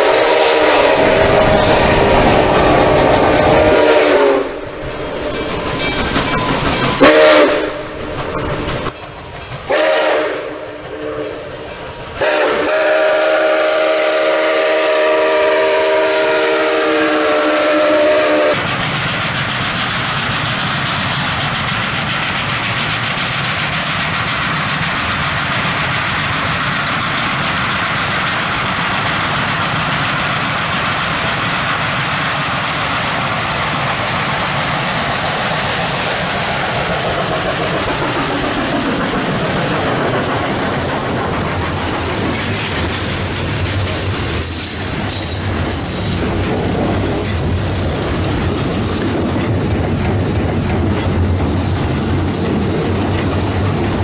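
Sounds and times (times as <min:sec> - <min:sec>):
steam locomotive whistle blasts: 0:00.0 - 0:08.0, 0:09.7 - 0:18.6
steady rushing noise: 0:00.0 - 0:09.7, 0:18.5 - 0:54.0.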